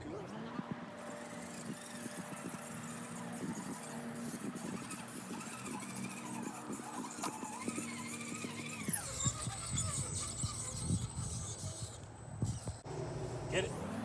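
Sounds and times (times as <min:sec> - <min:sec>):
electric motor and gears whining: 0:00.0 - 0:14.0.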